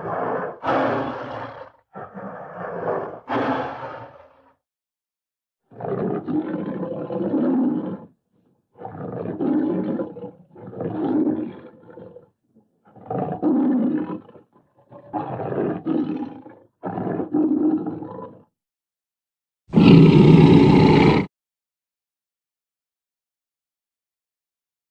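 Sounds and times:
big cat roaring: 0.0 - 4.6, 5.7 - 8.2, 8.8 - 18.5, 19.7 - 21.3.

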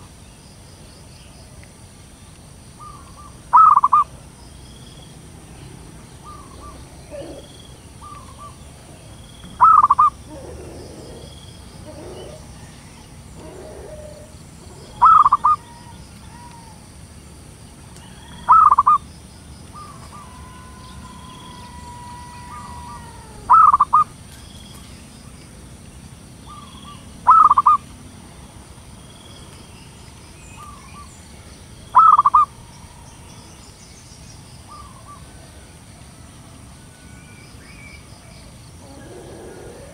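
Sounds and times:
dove trilled calls: 2.8 - 16.9, 18.0 - 25.0, 26.4 - 27.9, 30.3 - 33.6, 34.3 - 35.4, 37.8 - 39.9
faint dove cooing: 6.2 - 8.8, 9.6 - 16.8, 19.8 - 24.0, 38.8 - 39.9.

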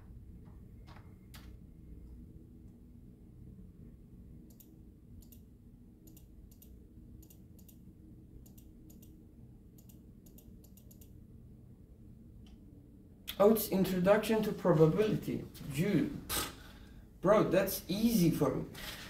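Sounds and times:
low room hum: 0.0 - 19.0
computer mouse clicks: 4.5 - 5.4, 6.0 - 7.8, 8.4 - 9.2, 9.8 - 11.2.

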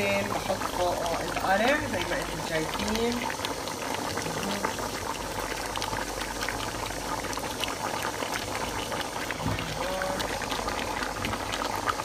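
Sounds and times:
sauce bubbling in a pot: 0.0 - 12.0.

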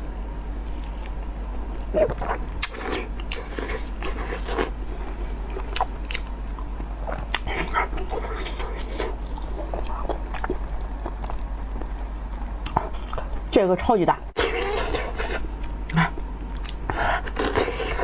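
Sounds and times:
low electrical hum: 0.0 - 18.0
wet chewing and smacking: 0.7 - 13.4, 15.8 - 17.0.

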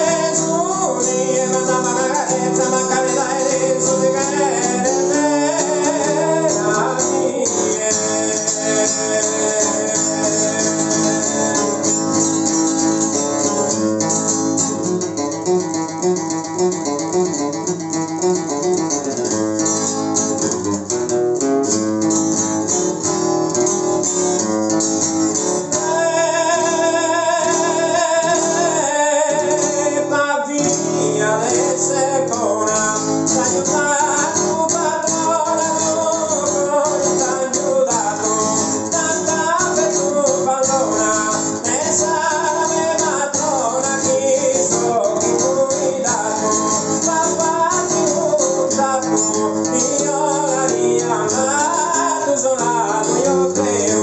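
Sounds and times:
person singing: 0.0 - 13.8, 25.3 - 54.0
acoustic guitar strumming: 0.0 - 54.0.

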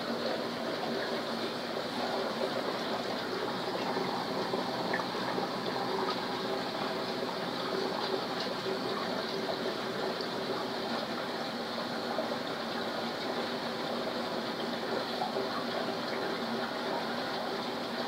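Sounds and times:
rushing aquarium water: 0.0 - 18.0.

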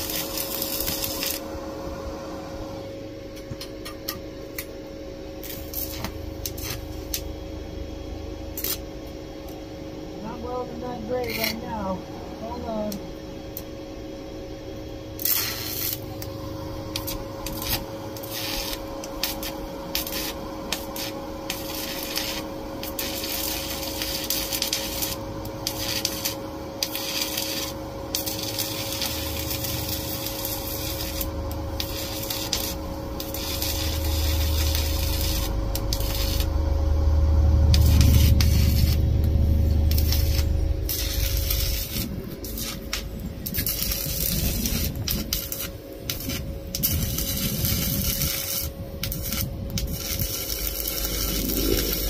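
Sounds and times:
welder hum: 0.0 - 52.0
welding arc crackling: 0.0 - 52.0
low rumble: 15.9 - 20.7, 27.8 - 52.0.

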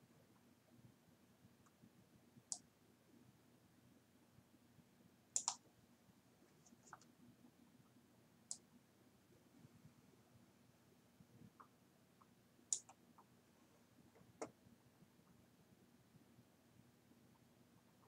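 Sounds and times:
computer mouse clicks: 5.4 - 5.6, 11.6 - 13.3.

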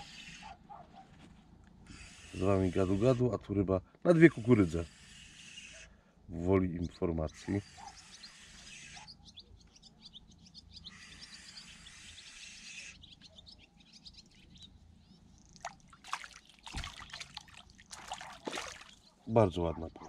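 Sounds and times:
small birds chirping: 4.2 - 20.0
dull thump: 16.7 - 17.1.

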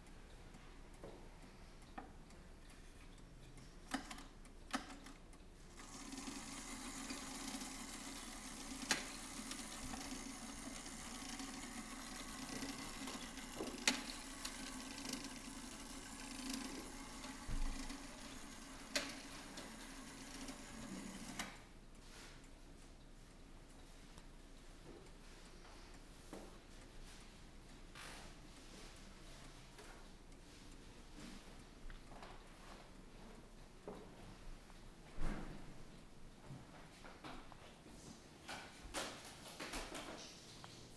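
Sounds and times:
clock ticking: 0.0 - 32.2
clock gears whirring: 5.7 - 21.7.

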